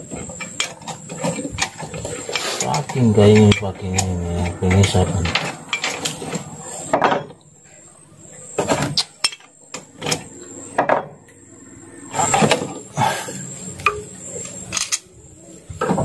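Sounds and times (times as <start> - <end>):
metal tools clinking: 0.4 - 6.3, 13.8 - 15.1.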